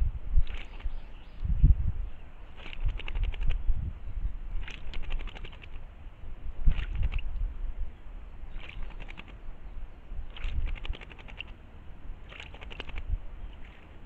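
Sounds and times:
bird rattling call: 0:08.5 - 0:09.4.

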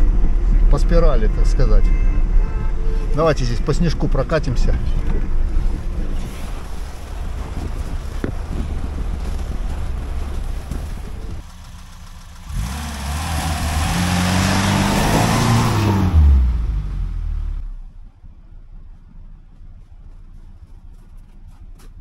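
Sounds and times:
car engine pulling under throttle: 0:02.2 - 0:21.5
tyres churning snow: 0:03.1 - 0:17.6
wind buffeting: 0:04.2 - 0:11.5.

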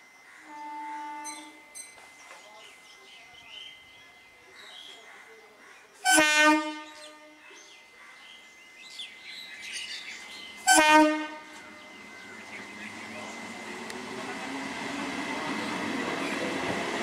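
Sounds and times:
train horn blasts: 0:00.4 - 0:01.8, 0:06.0 - 0:07.4, 0:10.6 - 0:12.0.

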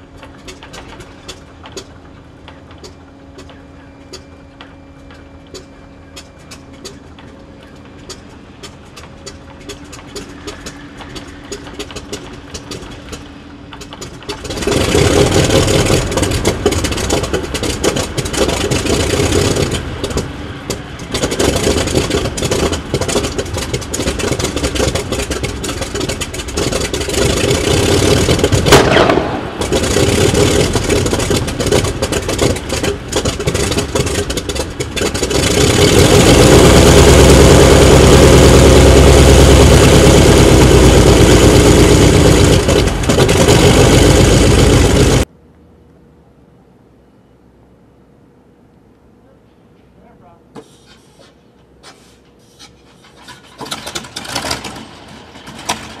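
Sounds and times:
radial engine running roughly: 0:00.0 - 0:45.3
sharp engine pop: 0:28.2 - 0:35.3.

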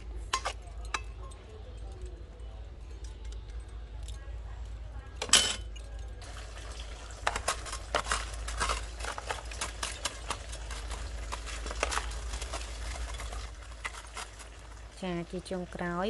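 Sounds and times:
sauce bubbling in a wok: 0:06.2 - 0:16.0
loud crackle: 0:07.1 - 0:15.0.

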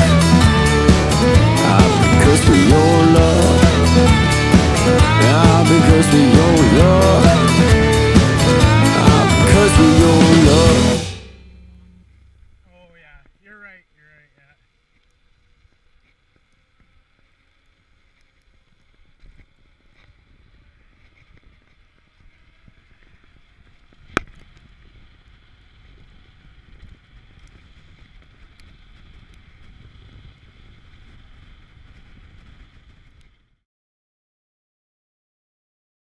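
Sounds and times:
bike tyres rolling on pavement: 0:14.7 - 0:33.6.

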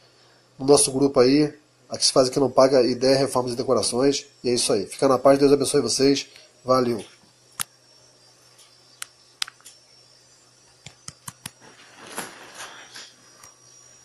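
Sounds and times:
sharp clicks: 0:08.6 - 0:09.8, 0:10.8 - 0:11.6.

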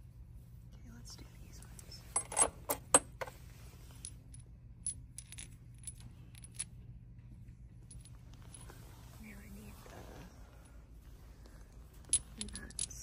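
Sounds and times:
low steady hum: 0:00.0 - 0:13.0
metal bolts clinking: 0:12.0 - 0:13.0.

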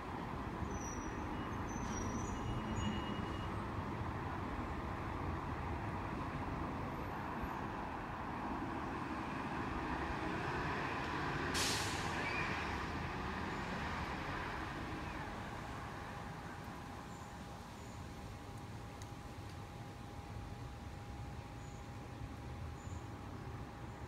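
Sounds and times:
distant road traffic rumble: 0:00.0 - 0:24.0
sharp hiss: 0:11.5 - 0:12.3.

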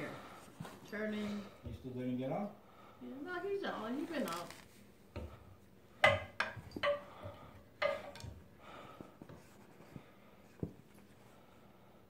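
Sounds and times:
cardboard rustling: 0:04.0 - 0:04.8.

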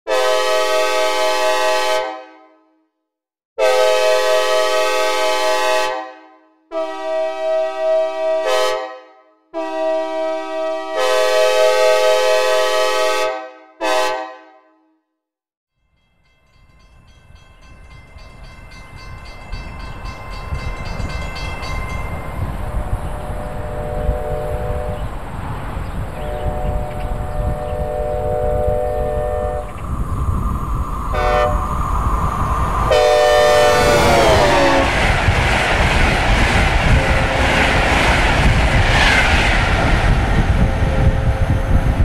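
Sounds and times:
synthesized train horn blasts: 0:00.1 - 0:02.8, 0:03.6 - 0:15.0, 0:23.5 - 0:25.0, 0:26.3 - 0:29.7, 0:31.1 - 0:31.7, 0:32.9 - 0:35.1, 0:36.9 - 0:37.8
approaching train rumble: 0:16.2 - 0:42.0.

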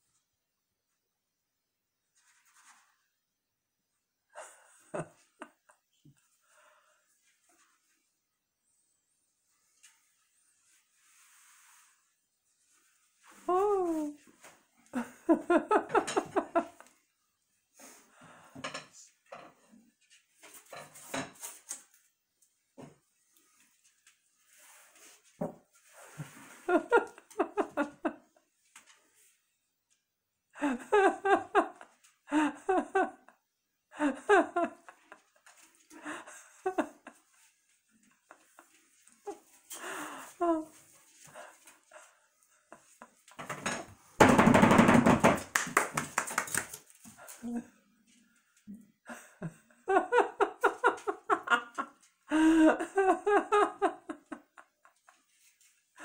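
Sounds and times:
person laughing: 0:13.5 - 0:14.2, 0:49.1 - 0:54.7.

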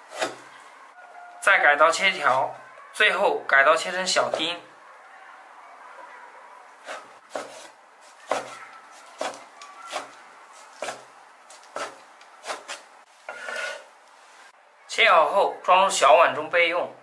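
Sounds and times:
cleaver chopping on wooden board: 0:06.9 - 0:10.2, 0:10.8 - 0:12.8.

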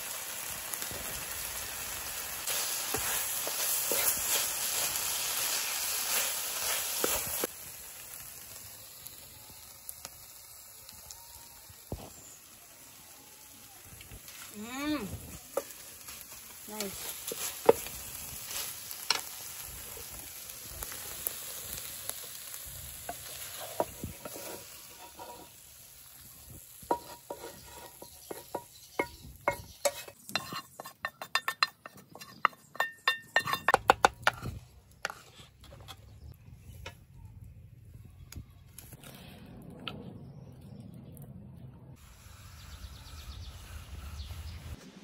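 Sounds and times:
vegetables sizzling in a frying pan: 0:00.0 - 0:30.5
wooden spoon scraping a pan: 0:02.4 - 0:07.5, 0:15.5 - 0:19.3, 0:23.0 - 0:25.7, 0:26.8 - 0:36.2.

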